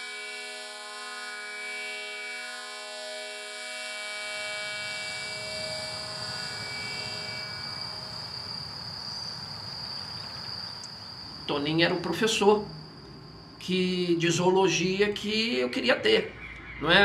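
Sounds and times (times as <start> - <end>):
high-pitched insect trill: 0.0 - 17.0
droning chord music: 0.1 - 8.5
low rumbling ambient noise: 5.2 - 17.0.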